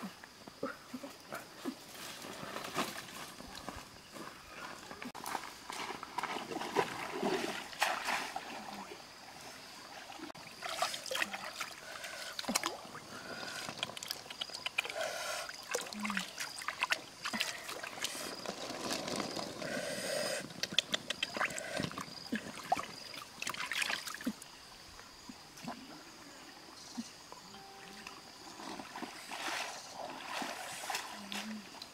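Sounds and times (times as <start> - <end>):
stream water splashing: 6.1 - 19.6, 20.5 - 31.9.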